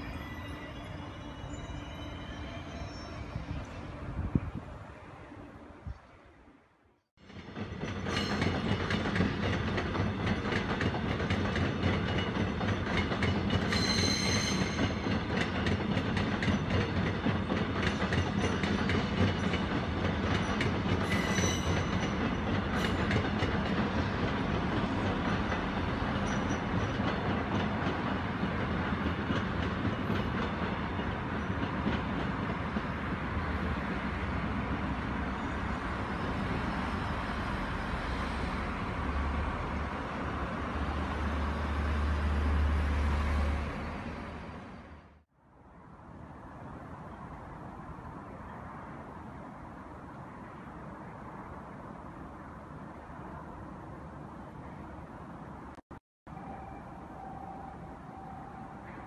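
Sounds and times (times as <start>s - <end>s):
high-pitched wheel squeals: 0.0s - 4.0s, 13.7s - 15.0s, 21.0s - 22.0s
train wheels clicking over rails: 7.2s - 33.3s.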